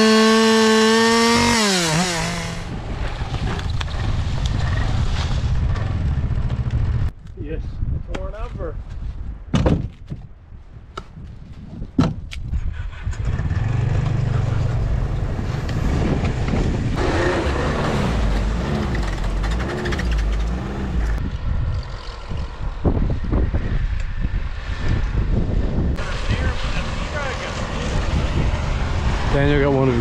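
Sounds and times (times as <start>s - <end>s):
snowmobile engine revving: 0.0s - 2.8s, 13.2s - 21.2s, 26.0s - 30.0s.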